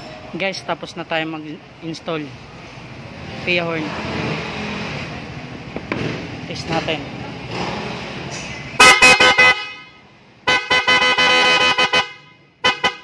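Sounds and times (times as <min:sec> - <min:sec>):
motorcycle horn tooting: 0:08.8 - 0:13.0.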